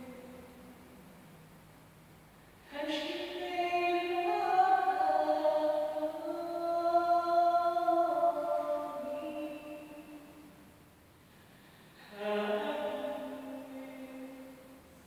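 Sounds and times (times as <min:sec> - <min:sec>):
person singing long notes: 0:02.7 - 0:10.5.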